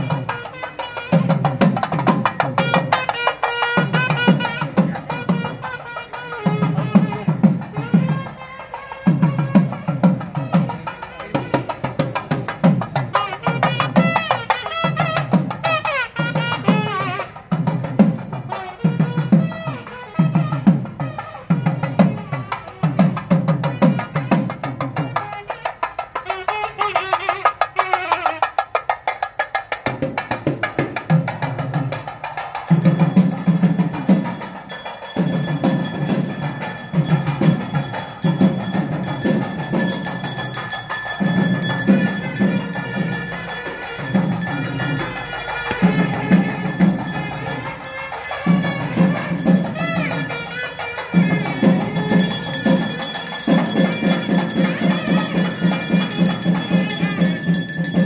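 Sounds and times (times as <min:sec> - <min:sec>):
drums beating fast rhythm: 0:00.0 - 0:58.0
high ringing tones: 0:32.7 - 0:58.0.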